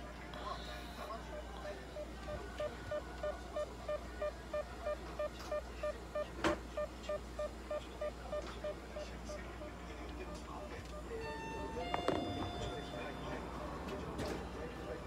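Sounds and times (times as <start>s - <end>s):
heart monitor beeping: 1.0s - 9.4s, 10.2s - 13.8s.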